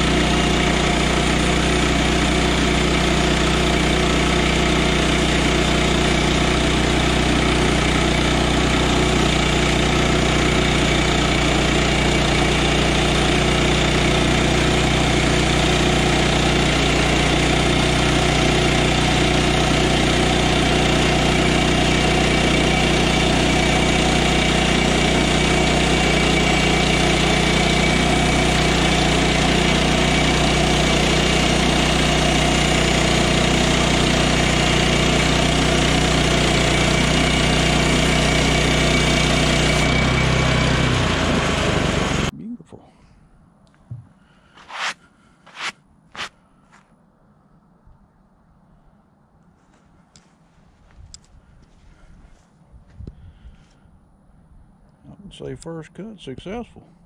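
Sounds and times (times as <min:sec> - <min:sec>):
bandsaw mill running: 0:00.0 - 0:42.3, 0:44.6 - 0:46.3
small gas engine: 0:00.0 - 0:42.3, 0:44.3 - 0:46.8.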